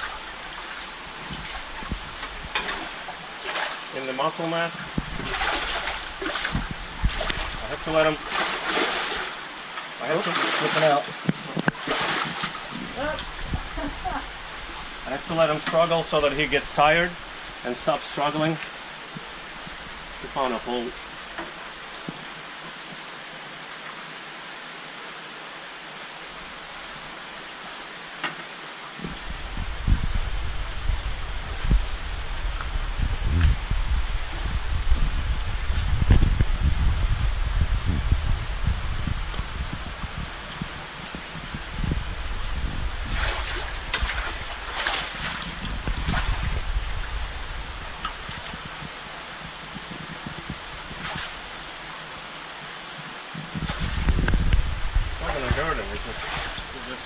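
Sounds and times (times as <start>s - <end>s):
rushing water hiss: 0.0s - 57.0s
low rumble: 29.1s - 44.0s.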